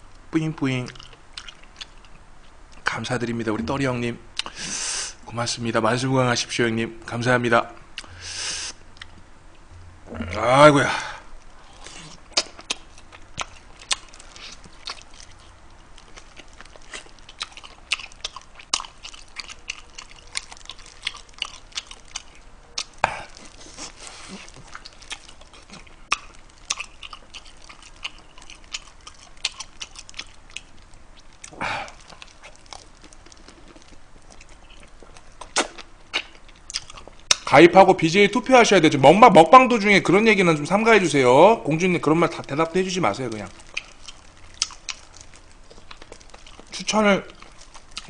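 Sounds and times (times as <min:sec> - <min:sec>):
chewing and lip-smacking: 0:00.8 - 0:02.8, 0:11.4 - 0:37.5, 0:42.3 - 0:48.0.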